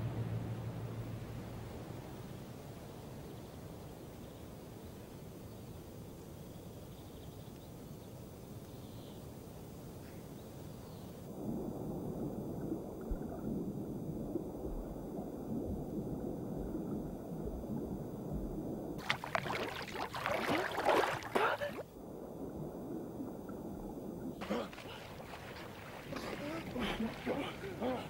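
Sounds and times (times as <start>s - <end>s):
muffled underwater rumble: 0.0s - 5.3s, 10.1s - 28.0s
splashing and bubbling: 11.3s - 28.0s.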